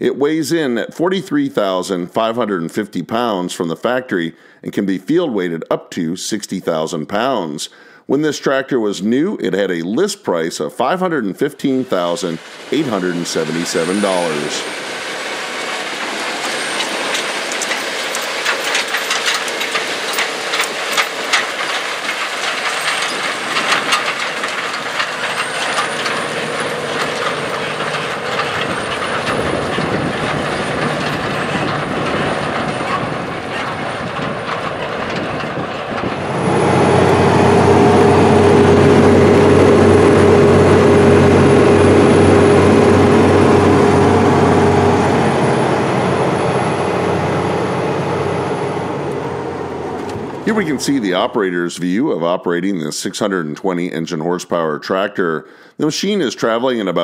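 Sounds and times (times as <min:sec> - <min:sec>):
tractor diesel engine: 0:10.8 - 0:52.2
rattles and clatter: 0:12.4 - 0:51.0
steady hum: 0:36.0 - 0:51.0.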